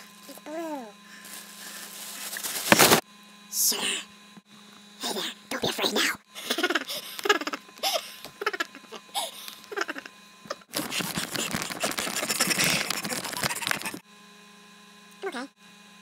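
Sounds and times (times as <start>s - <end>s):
steady low hum: 0.0s - 14.1s
man laughing and shrieking: 6.4s - 14.0s
rubbing and scraping on microphone: 10.7s - 14.0s.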